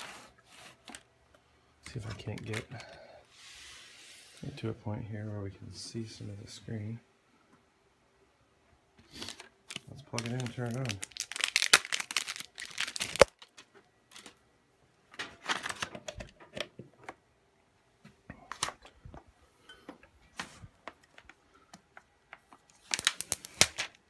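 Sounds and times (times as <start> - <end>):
cord rustling: 9.0 - 14.4.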